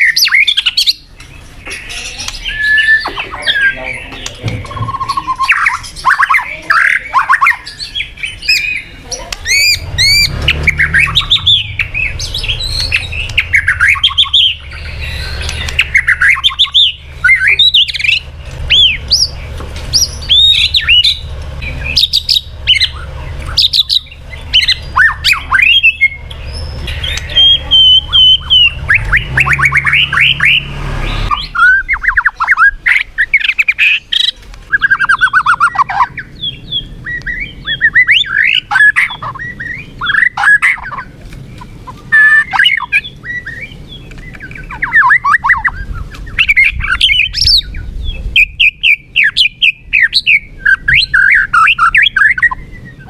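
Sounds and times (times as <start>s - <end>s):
bird singing whistles and trills: 0.0s - 53.0s.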